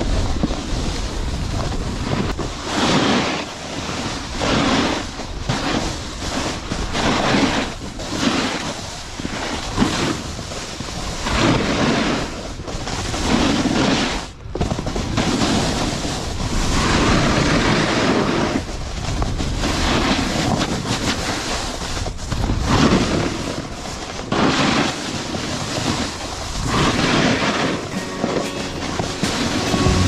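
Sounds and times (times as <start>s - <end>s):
wind over microphone: 0.0s - 27.9s
snowboard scraping across snow: 0.0s - 30.0s.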